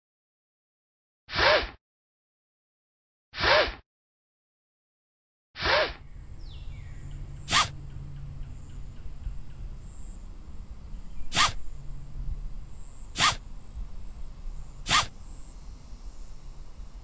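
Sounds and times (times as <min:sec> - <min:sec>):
sharp brief swish: 0:01.3 - 0:01.8, 0:03.4 - 0:03.8, 0:05.6 - 0:06.0, 0:07.5 - 0:07.8, 0:11.3 - 0:11.6, 0:13.2 - 0:13.4, 0:14.9 - 0:15.2
low hum and hiss: 0:06.0 - 0:17.0
short noisy burst: 0:07.4 - 0:07.8, 0:11.3 - 0:11.7, 0:13.1 - 0:13.5, 0:14.8 - 0:15.2.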